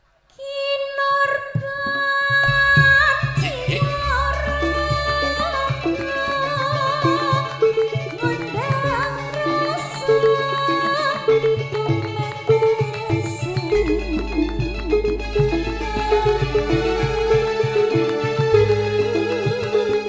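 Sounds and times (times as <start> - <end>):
bass: 2.4 - 10.0, 13.1 - 20.0
steady drum rhythm: 2.5 - 9.2, 12.0 - 20.0
melody with wavering notes: 3.5 - 20.0.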